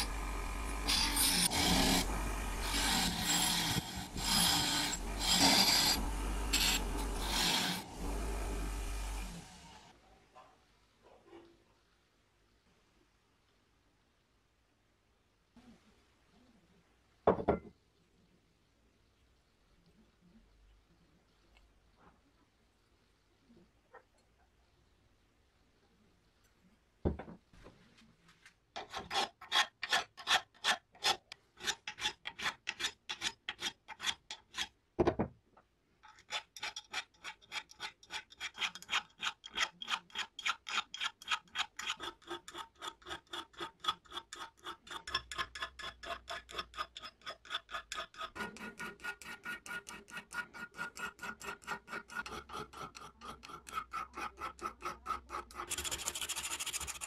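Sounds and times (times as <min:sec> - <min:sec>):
sandpaper scratching metal: 0:00.0 - 0:09.2, 0:36.2 - 0:57.0
file rasping on metal: 0:00.0 - 0:09.4, 0:28.8 - 0:34.7, 0:36.0 - 0:57.0.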